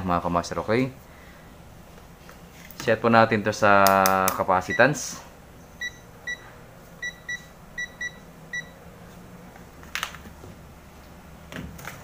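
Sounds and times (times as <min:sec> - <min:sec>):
multimeter short beeps: 0:05.8 - 0:08.7.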